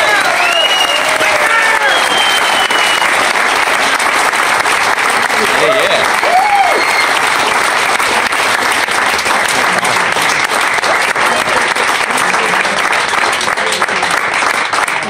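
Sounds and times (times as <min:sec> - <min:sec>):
person cheering: 0:00.0 - 0:02.4, 0:05.6 - 0:07.2
crowd applauding: 0:00.0 - 0:15.0.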